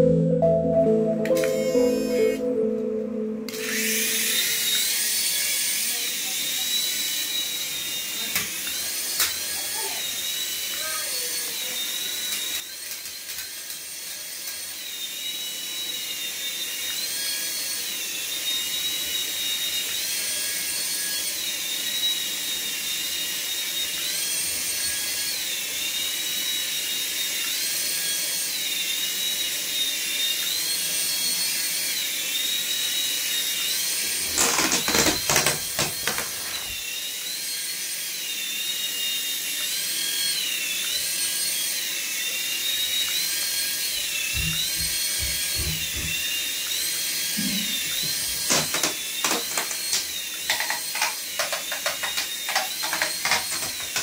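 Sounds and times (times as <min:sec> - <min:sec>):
toy helicopter motors whining: 0:01.4 - 0:02.4, 0:03.5 - 0:54.0.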